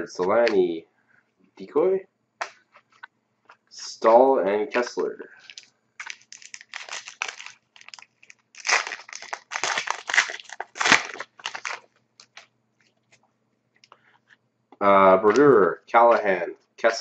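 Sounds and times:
wrapper tearing and crinkling: 0:05.5 - 0:12.5.

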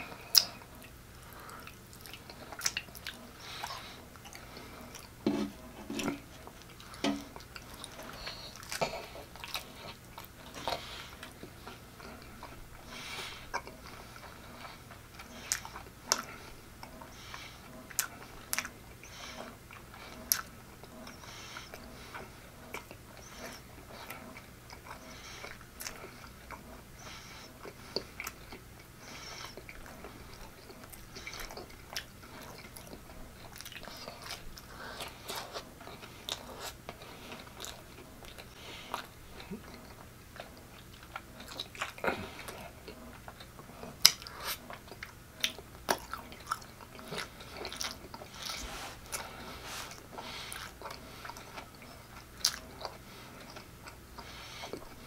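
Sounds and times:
wet chewing: 0:00.0 - 0:55.0
lip smacks: 0:44.0 - 0:55.0.

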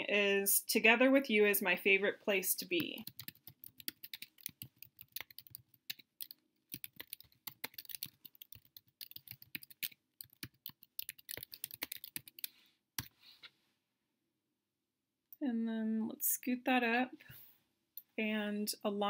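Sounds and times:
typing on computer keyboard: 0:03.0 - 0:13.1.

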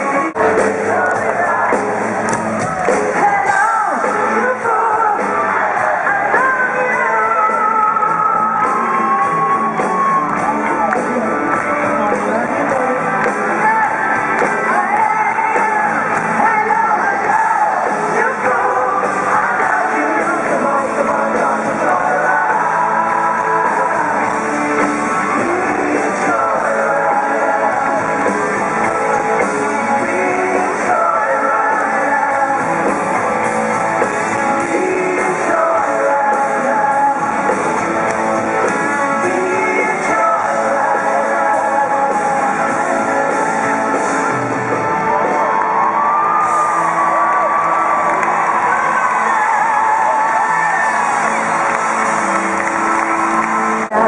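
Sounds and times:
woman singing: 0:00.0 - 0:02.1, 0:03.1 - 0:09.0, 0:12.3 - 0:24.4, 0:25.3 - 0:28.2, 0:29.6 - 0:33.1, 0:34.6 - 0:37.6, 0:39.0 - 0:43.7
rock band playing live: 0:00.0 - 0:54.0.

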